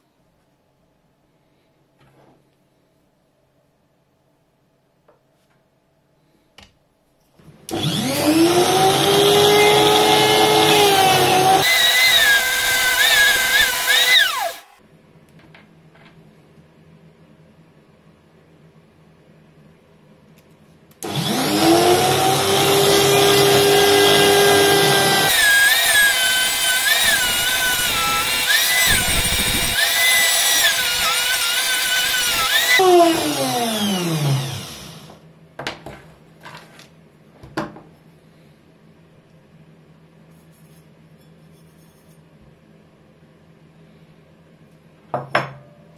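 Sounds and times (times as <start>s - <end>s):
rotary tool whine: 21.0s - 35.2s.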